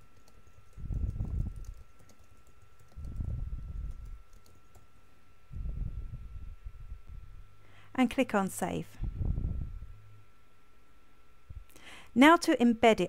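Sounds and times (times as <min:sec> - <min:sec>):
typing on computer keyboard: 0:00.0 - 0:04.9.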